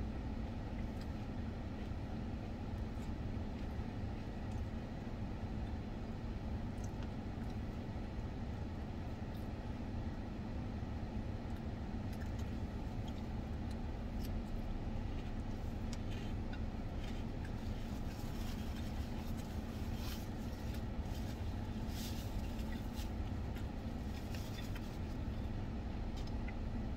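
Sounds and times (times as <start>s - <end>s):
eating from plastic container: 11.5s - 26.6s.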